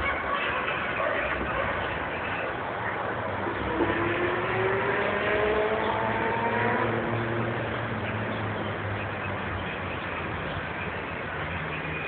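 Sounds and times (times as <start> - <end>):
traffic rumble: 0.0 - 12.0
vehicle engine accelerating: 3.3 - 10.4.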